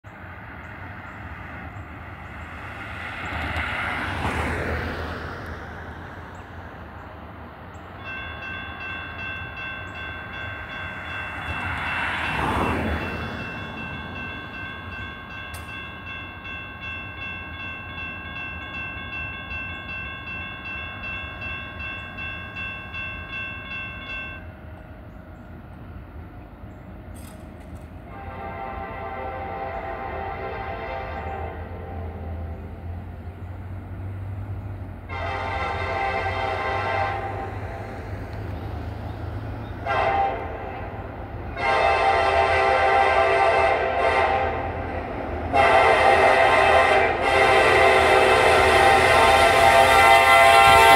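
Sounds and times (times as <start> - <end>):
road vehicle passing: 0.1 - 8.0, 31.0 - 41.6
railroad crossing bell ringing: 7.7 - 32.2, 45.6 - 50.9.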